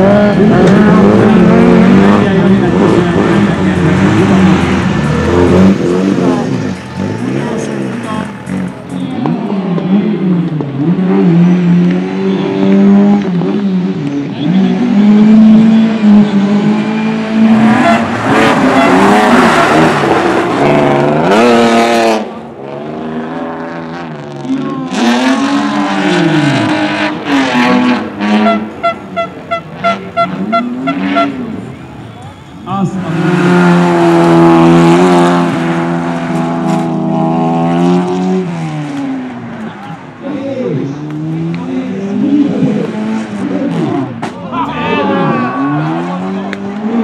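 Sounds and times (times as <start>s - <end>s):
race car passing close: 0.0s - 29.0s
race car engines revving: 0.0s - 47.0s.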